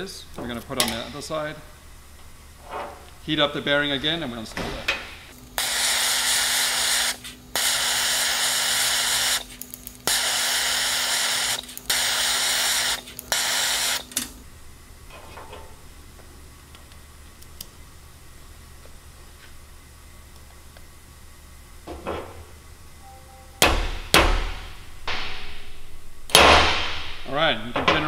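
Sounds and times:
steady low hum: 0.0 - 28.0
heating tool hissing: 5.5 - 14.1.

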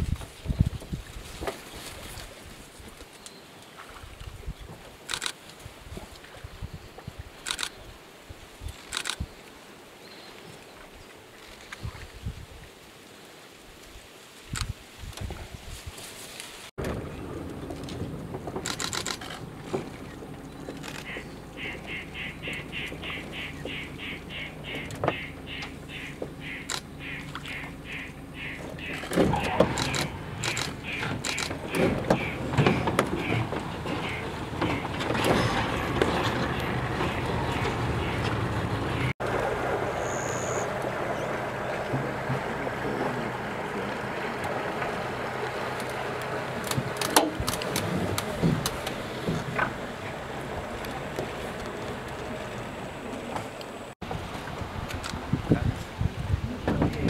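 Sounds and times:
water noise: 16.3 - 57.0
boat motor idling: 16.8 - 53.9
rasping animal call: 20.8 - 38.7.

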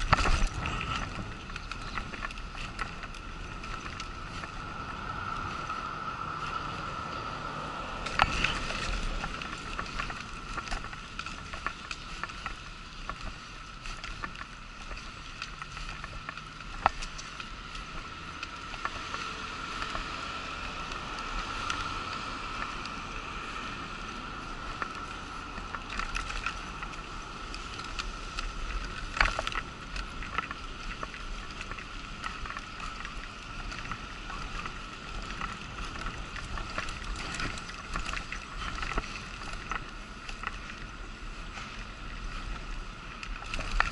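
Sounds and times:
wheelchair rolling over paving: 0.0 - 43.9.

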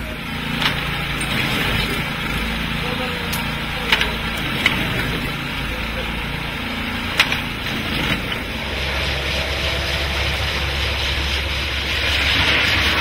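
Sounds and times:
diesel engine drone: 0.0 - 13.0
rushing noise: 3.9 - 13.0.

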